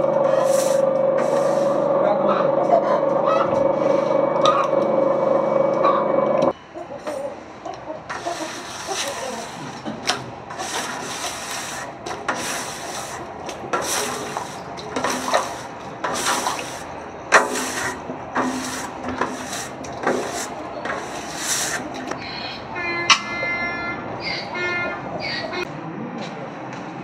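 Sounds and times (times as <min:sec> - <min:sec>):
scraper rasping on steel tank: 0:00.2 - 0:01.9, 0:08.1 - 0:22.2.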